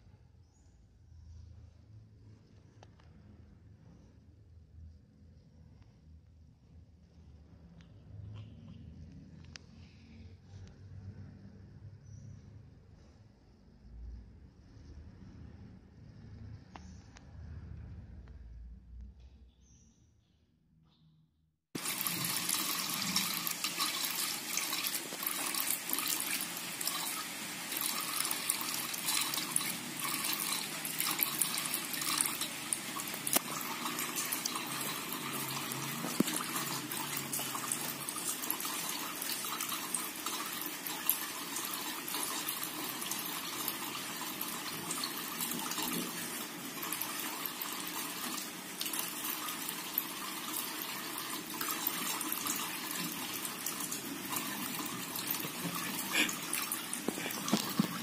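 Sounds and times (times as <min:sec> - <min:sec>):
tap water running into metal sink: 0:21.8 - 0:58.0.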